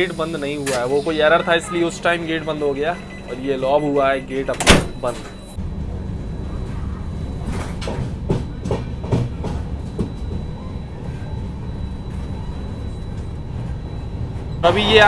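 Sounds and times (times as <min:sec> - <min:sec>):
train rumbling: 0:05.0 - 0:15.0.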